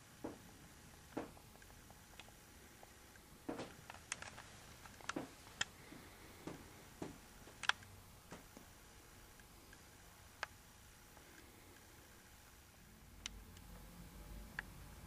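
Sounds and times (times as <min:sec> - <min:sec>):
faint clicks and taps: 0:00.2 - 0:08.7.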